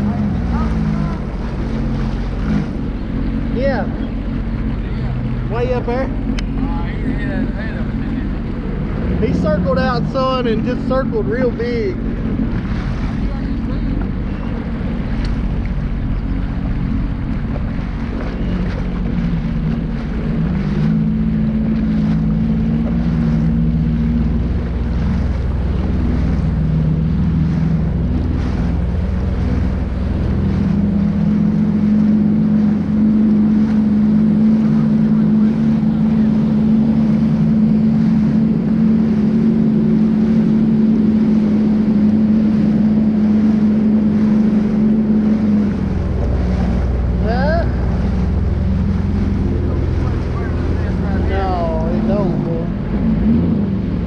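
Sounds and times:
watercraft engine running: 0.0s - 54.0s.

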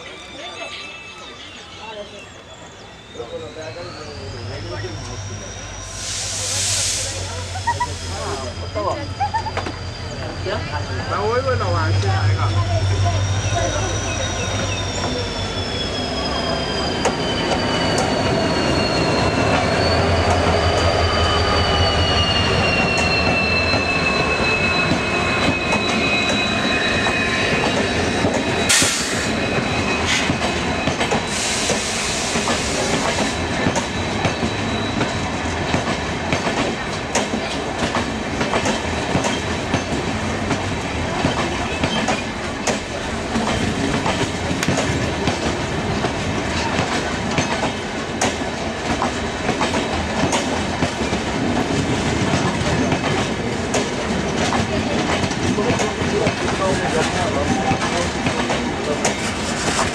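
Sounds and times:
high wheel squeal: 0.0s - 36.2s, 36.8s - 48.5s
diesel locomotive engine rumble: 0.0s - 59.9s
train wheels clattering over rail joints: 30.0s - 59.9s.

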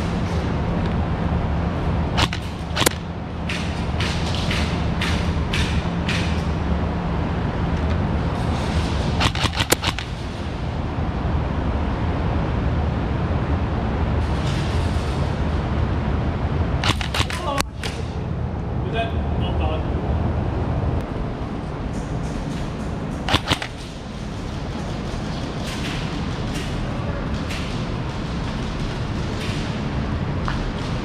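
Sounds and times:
steady low rumble: 0.0s - 31.0s
airsoft guns firing: 2.2s - 6.4s, 9.2s - 10.2s, 16.8s - 17.7s, 23.3s - 24.0s.

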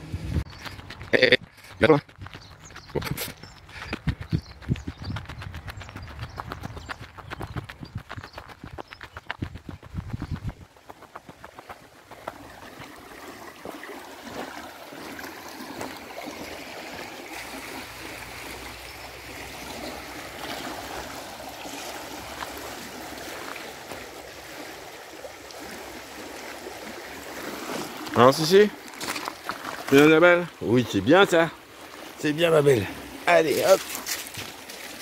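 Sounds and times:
river flowing over pebbles: 10.5s - 35.0s.

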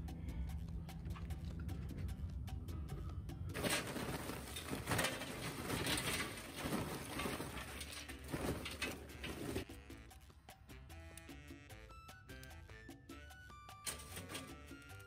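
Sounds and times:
quiet background music: 0.0s - 15.0s
charcoal clattering into metal: 3.5s - 9.7s, 13.8s - 14.9s.

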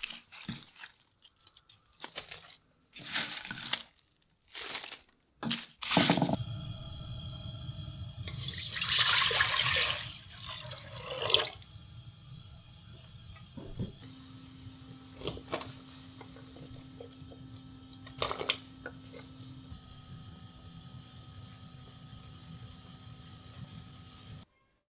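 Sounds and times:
water pouring into metal pot: 8.3s - 11.7s.

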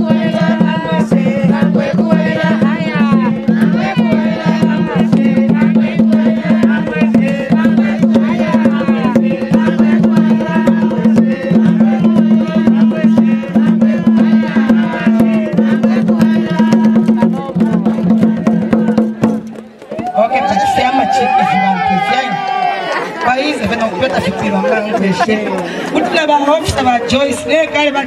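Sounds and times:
voices singing: 0.0s - 20.0s
wooden drums beating fast rhythm: 0.0s - 22.5s, 23.2s - 28.0s.

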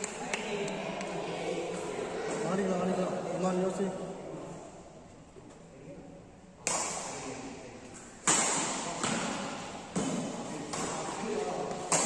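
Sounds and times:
racket hitting shuttlecock: 6.6s - 7.2s, 8.2s - 12.0s.

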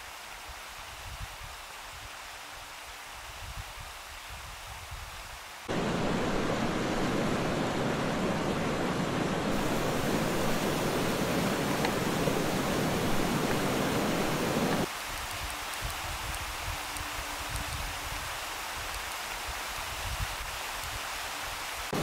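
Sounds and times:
rushing river water: 5.6s - 22.0s
faint stream murmur: 5.7s - 22.0s.

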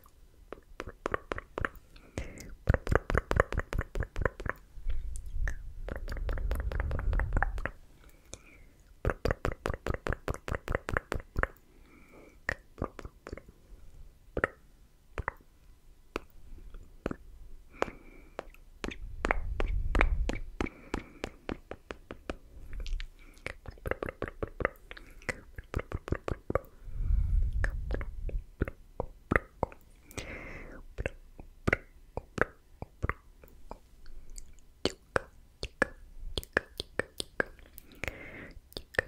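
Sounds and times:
tongue and lip clicks: 0.0s - 11.7s, 12.4s - 13.5s, 14.3s - 14.6s, 15.2s - 15.5s, 16.1s - 26.8s, 27.4s - 30.3s, 30.9s - 39.0s
low rumbling on microphone: 19.0s - 20.6s, 26.8s - 28.6s.

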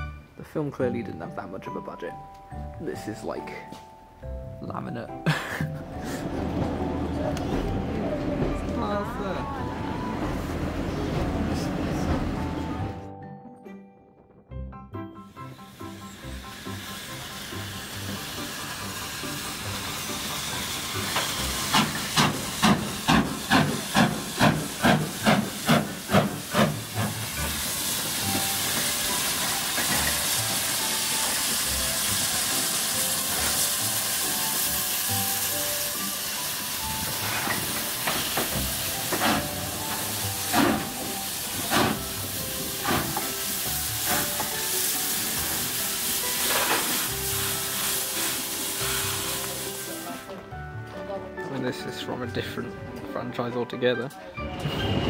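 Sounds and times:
steam hissing: 15.2s - 50.4s
steam locomotive chuffing: 15.3s - 49.9s.

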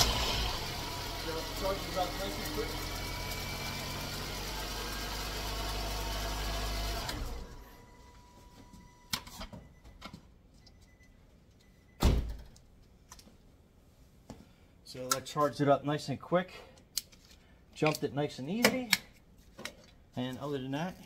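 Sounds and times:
car engine idling: 0.0s - 7.6s.

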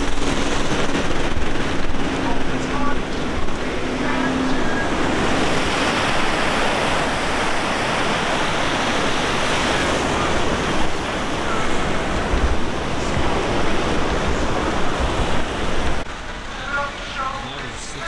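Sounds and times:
wind buffeting microphone: 0.0s - 16.5s
river rushing over gravel: 0.0s - 18.0s.

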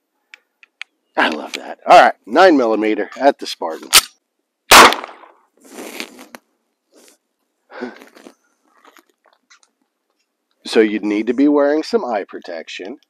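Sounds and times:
pistol shot: 4.7s - 5.3s.

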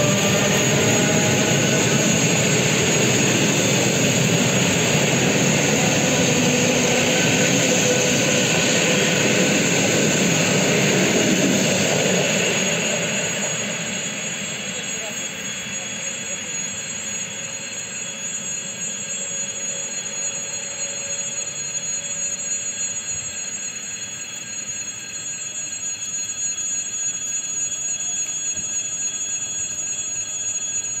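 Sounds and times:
train wheels rumbling on rails: 0.0s - 16.8s
electric motor whine: 0.0s - 31.0s
high-pitched electrical tones: 0.0s - 31.0s.

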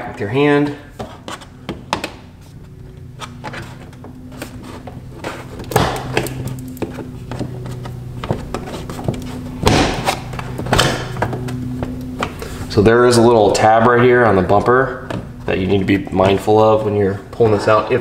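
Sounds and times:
plastic scraping rustles: 2.4s - 12.6s.

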